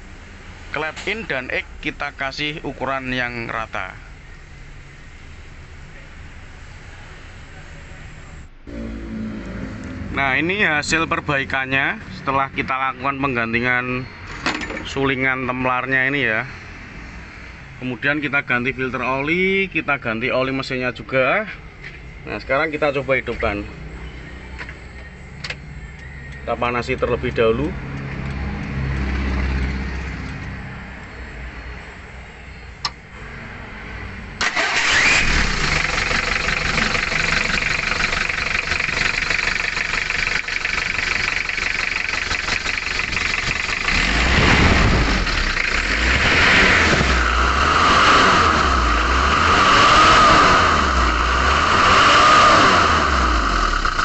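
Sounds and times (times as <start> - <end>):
diesel engine running and revving: 8.6 - 12.7, 23.3 - 31.1, 34.4 - 54.0.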